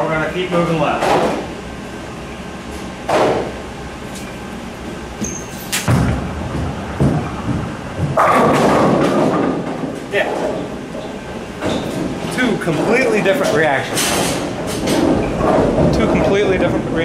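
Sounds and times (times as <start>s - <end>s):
bowling ball rolling: 5.1s - 13.4s, 14.4s - 17.0s
ball crashing into pins: 5.7s - 10.0s
sharp knock: 5.8s - 9.5s.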